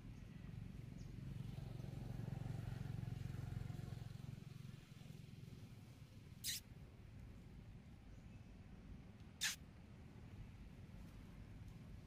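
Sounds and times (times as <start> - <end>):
sharp high-pitched squeak: 6.4 - 6.6, 9.4 - 9.6.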